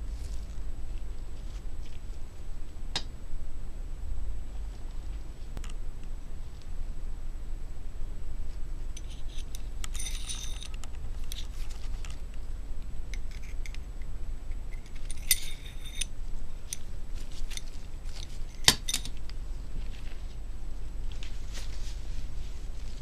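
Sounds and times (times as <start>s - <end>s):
steady low hum: 0.0s - 23.0s
metal tools clinking: 9.0s - 12.2s, 14.7s - 19.2s.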